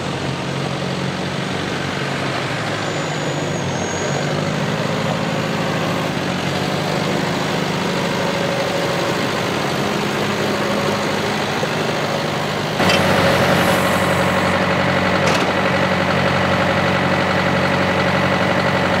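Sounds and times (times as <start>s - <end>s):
tractor diesel engine running: 0.0s - 19.0s
engine idling: 4.7s - 19.0s
thin high whine: 12.8s - 14.6s.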